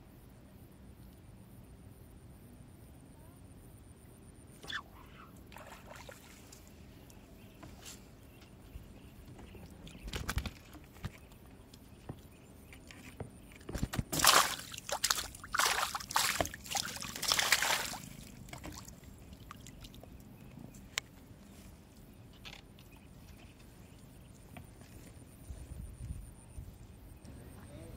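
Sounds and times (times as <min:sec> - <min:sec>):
fish splashing in water: 0:13.8 - 0:20.0.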